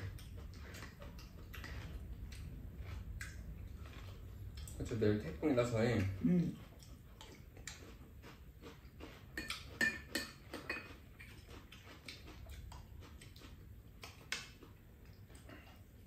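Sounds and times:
spoons clinking against bowls: 0:09.4 - 0:11.4.

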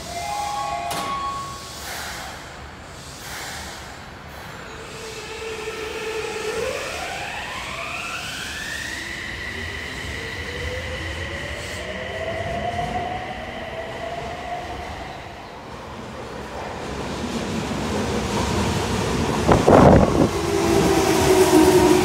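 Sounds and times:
train inverter whining: 0:18.2 - 0:22.0.

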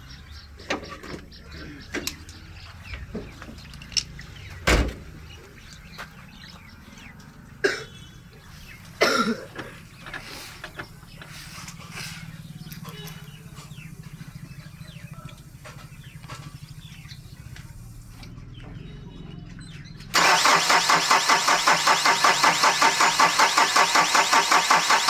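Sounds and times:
diesel engine starter cranking: 0:20.1 - 0:25.0.

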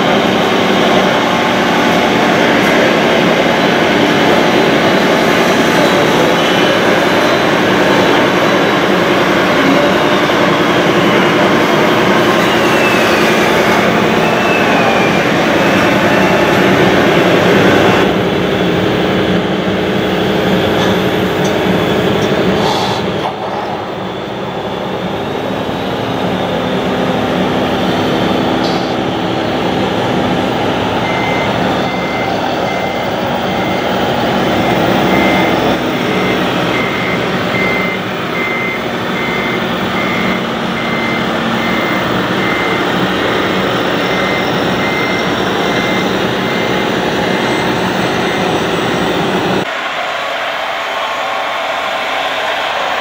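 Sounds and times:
reversing alarm beeps: 0:30.6 - 0:49.2.

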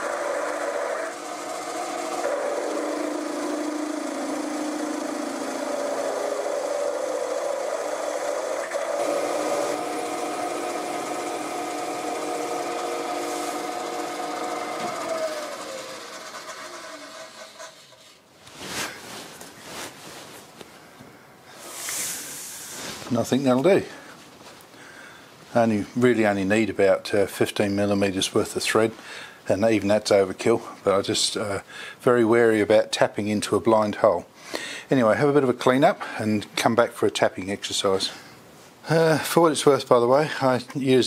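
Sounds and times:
milling machine hum: 0:00.0 - 0:18.1
spindle whine winding down: 0:00.0 - 0:18.1.

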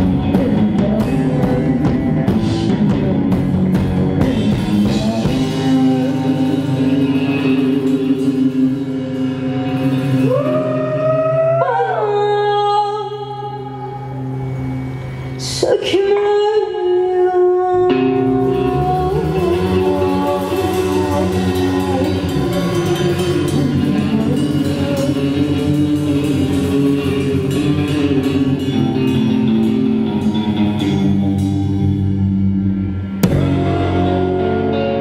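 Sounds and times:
drum kit: 0:00.0 - 0:11.1, 0:18.0 - 0:32.4, 0:33.1 - 0:35.0
electric guitar: 0:00.0 - 0:35.0
psychedelic rock band playing: 0:00.0 - 0:35.0.

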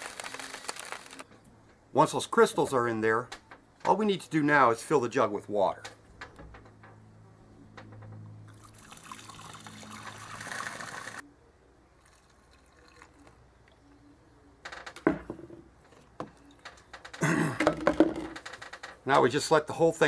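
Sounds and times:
water pouring into plastic jug: 0:08.5 - 0:11.2, 0:12.0 - 0:13.4
plastic knocks: 0:14.9 - 0:15.6, 0:17.1 - 0:18.5.

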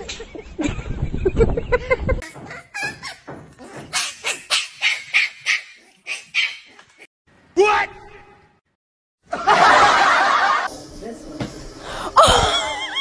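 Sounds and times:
puppy yipping barks: 0:03.9 - 0:06.8.

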